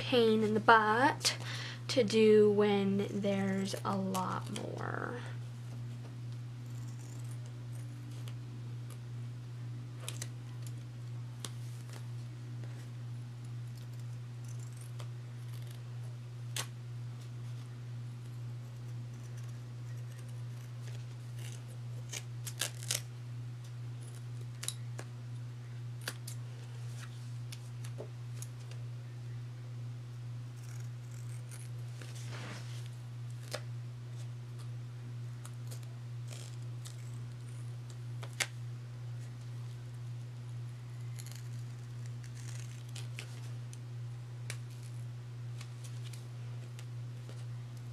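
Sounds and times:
steady low hum: 0:00.0 - 0:47.9
scissors snipping: 0:24.0 - 0:25.1, 0:35.4 - 0:37.5, 0:41.0 - 0:43.5.

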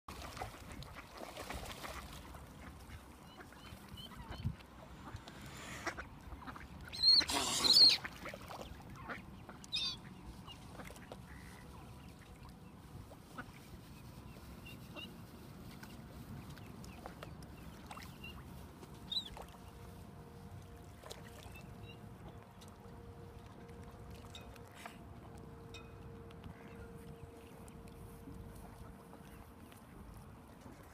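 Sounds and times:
ducks and swans calling: 0:00.6 - 0:15.8.

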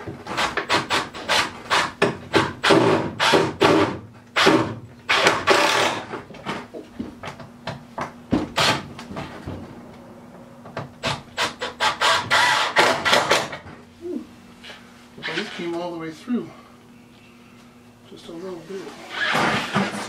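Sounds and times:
faint steady hum: 0:01.0 - 0:20.0
scraping strokes against wood: 0:14.6 - 0:15.8.

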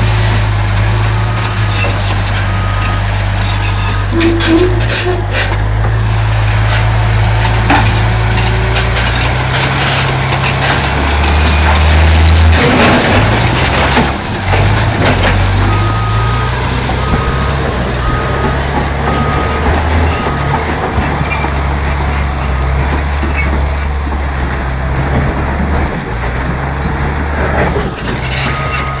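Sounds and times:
clatter: 0:00.0 - 0:16.2, 0:16.8 - 0:29.0
bulldozer diesel engine: 0:00.0 - 0:29.0
high beeps: 0:15.6 - 0:20.8.

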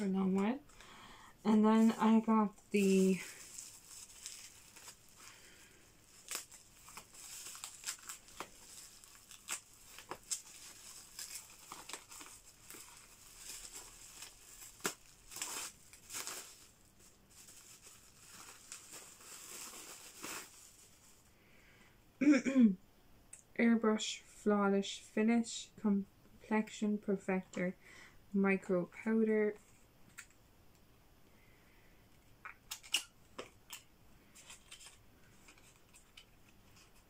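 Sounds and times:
bubble wrap crinkling and tearing: 0:01.7 - 0:21.3, 0:32.6 - 0:37.0.

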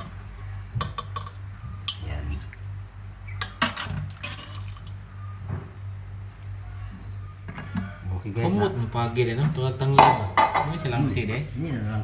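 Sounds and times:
steady low hum: 0:00.0 - 0:12.0
metal ladle scraping a pot: 0:03.4 - 0:04.8
liquid sloshing and dripping: 0:03.4 - 0:05.0.

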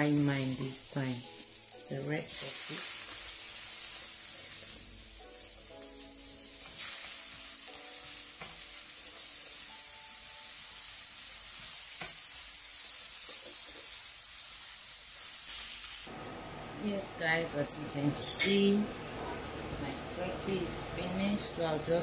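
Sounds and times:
potato slices sizzling in oil: 0:00.0 - 0:16.9.

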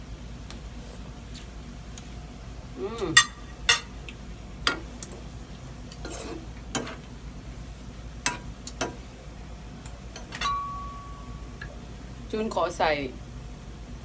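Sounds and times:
spatula scraping frying pan: 0:05.9 - 0:07.0
pan ringing tone: 0:10.4 - 0:11.6.

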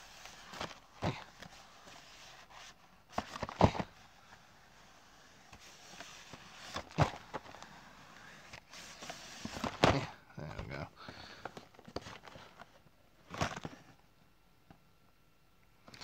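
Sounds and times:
cardboard cartons knocking and scraping: 0:00.2 - 0:04.0, 0:05.6 - 0:07.6, 0:08.5 - 0:12.4, 0:13.3 - 0:13.9.

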